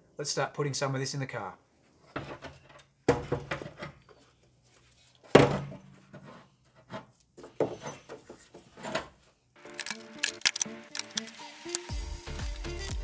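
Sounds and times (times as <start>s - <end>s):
metal knocks and clunks: 2.1s - 4.0s.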